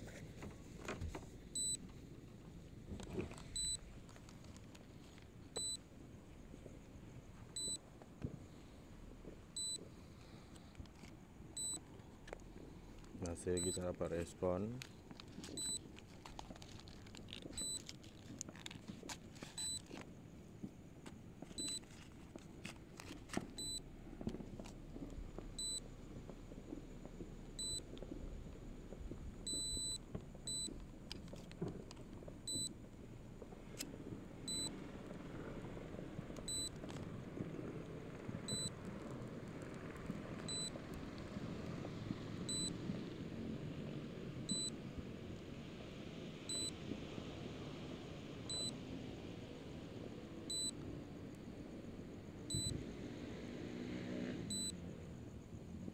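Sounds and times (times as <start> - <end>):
low steady rumble: 1.1 - 46.7, 49.8 - 52.8
high-pitched electronic warning beeps: 1.6 - 1.8, 3.6 - 3.8, 5.6 - 5.8, 7.6 - 7.8, 9.6 - 9.8, 11.6 - 11.8, 13.6 - 13.8, 23.6 - 23.8, 25.6 - 25.8, 27.6 - 27.8, 29.5 - 30.7, 32.5 - 32.7, 34.5 - 34.7, 36.5 - 36.7, 38.5 - 38.7, 40.5 - 40.7, 42.5 - 42.7, 44.5 - 44.7, 46.5 - 46.8, 48.5 - 48.7, 50.5 - 50.7, 52.5 - 52.8, 54.5 - 54.7.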